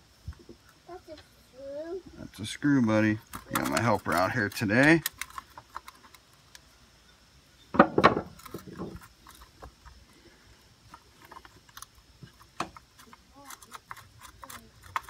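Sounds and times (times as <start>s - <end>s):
clicks and rattles of connectors: 3.3s - 6.6s.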